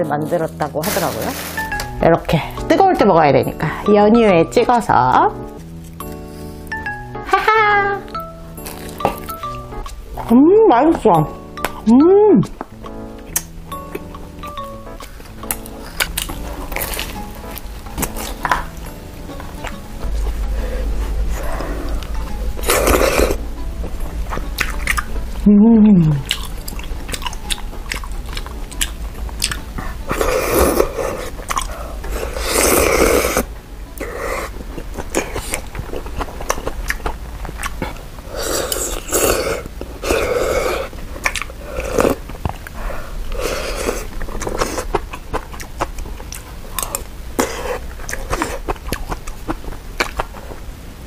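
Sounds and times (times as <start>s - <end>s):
chewing and mouth smacking: 11.6s - 20.4s, 24.2s - 25.5s, 26.2s - 33.4s, 34.0s - 40.3s, 40.9s - 50.6s
noodles slurped: 30.1s - 36.2s.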